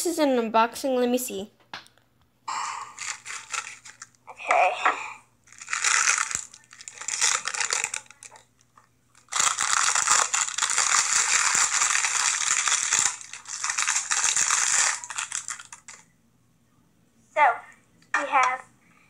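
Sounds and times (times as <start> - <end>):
package crinkling: 3.0 - 4.2, 5.5 - 16.0.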